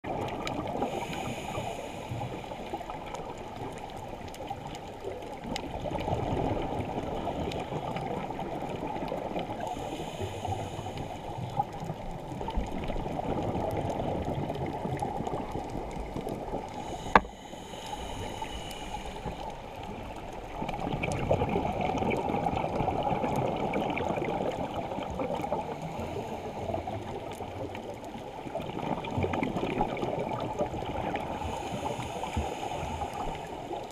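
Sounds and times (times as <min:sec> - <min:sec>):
regulator hissing inhale: 0:00.8 - 0:03.0, 0:09.6 - 0:11.6, 0:16.6 - 0:20.2, 0:25.6 - 0:27.2, 0:31.2 - 0:33.8
exhaled bubbles rushing: 0:19.9 - 0:26.1.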